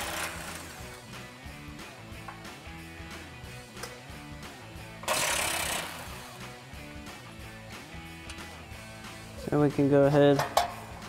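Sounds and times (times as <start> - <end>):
impact driver burst: 0.0 - 0.8, 5.0 - 6.3
background music: 0.0 - 11.0.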